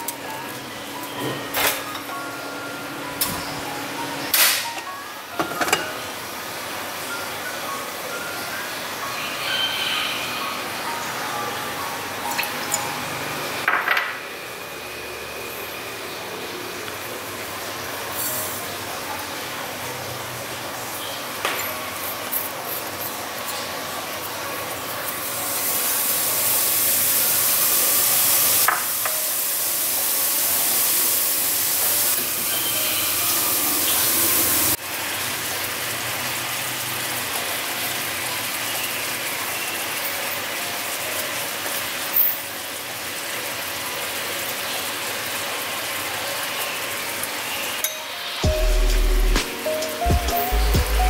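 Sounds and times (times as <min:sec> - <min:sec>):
syrup sizzling and bubbling in a wok: 0:24.0 - 0:47.8.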